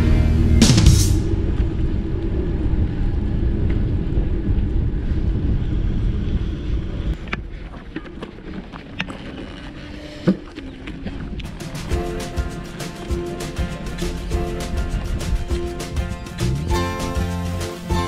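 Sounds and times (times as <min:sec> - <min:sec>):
wind rumble on microphone: 0:01.2 - 0:07.5.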